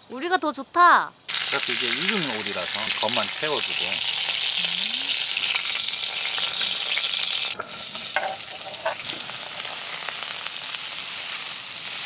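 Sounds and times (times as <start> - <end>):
meat sizzling in hot fat: 1.3 - 12.0.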